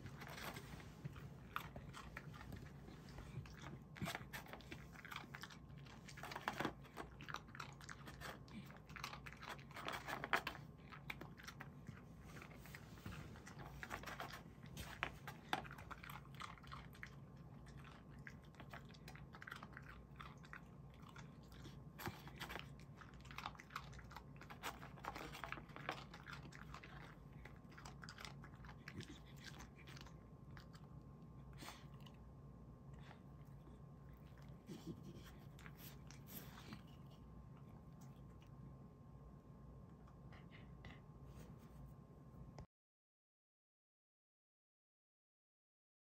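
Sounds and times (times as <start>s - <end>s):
dog chewing treats: 0.0s - 32.2s.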